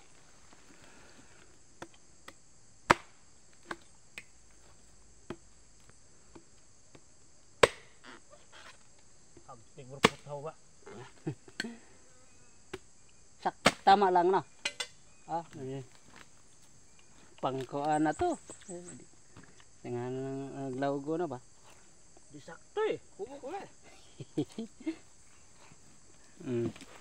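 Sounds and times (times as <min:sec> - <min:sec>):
insects buzzing: 0:00.0 - 0:27.0
knife chopping coconuts: 0:01.8 - 0:04.3, 0:07.6 - 0:07.9, 0:10.0 - 0:10.2, 0:13.6 - 0:13.9.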